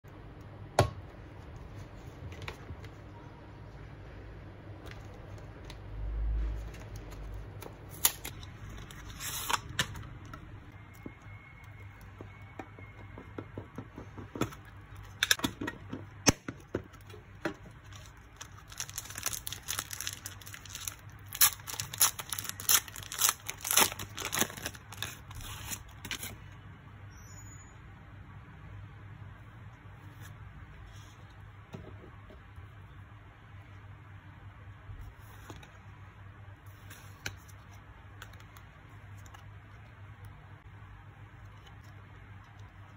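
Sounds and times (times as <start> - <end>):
cards crinkling and tearing: 6.6 - 10.0, 16.9 - 26.4.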